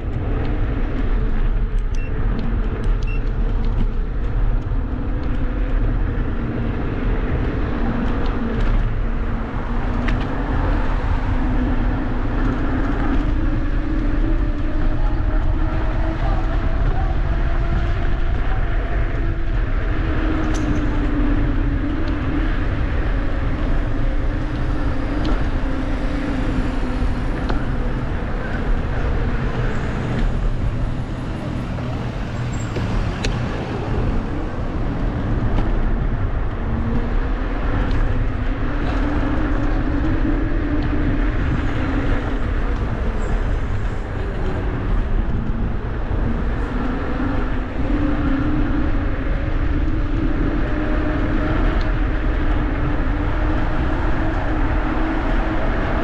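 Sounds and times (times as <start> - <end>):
vehicle rumble: 0.0 - 56.0.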